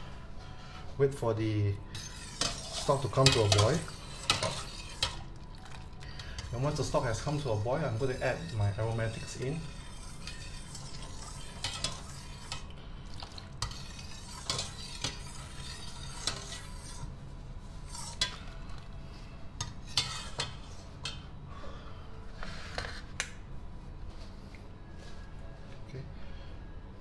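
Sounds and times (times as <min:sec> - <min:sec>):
steady low hum: 0:00.0 - 0:27.0
ladle clinking in metal pot: 0:02.3 - 0:05.8, 0:06.4 - 0:12.6.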